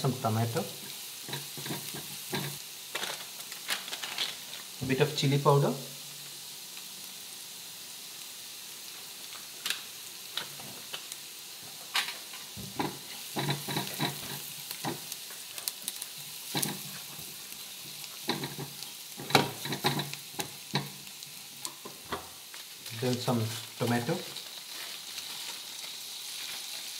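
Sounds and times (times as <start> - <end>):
onion and garlic sizzling in pan: 0.0 - 26.9
spatula scraping pan: 1.2 - 2.6, 12.7 - 15.0, 16.5 - 17.1, 17.8 - 20.2.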